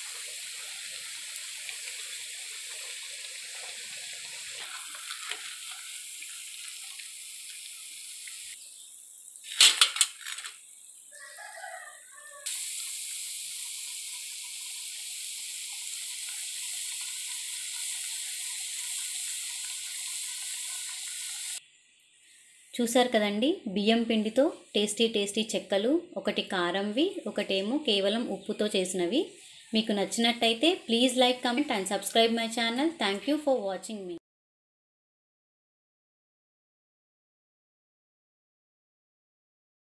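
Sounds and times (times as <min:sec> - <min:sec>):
deep-frying sizzle: 0:00.0 - 0:23.0.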